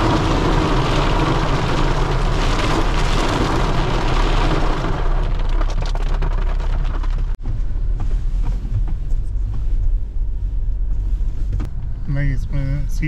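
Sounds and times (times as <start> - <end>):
tyres crackling on rough track: 0.0 - 9.9
vehicle engine rumble: 0.0 - 13.0.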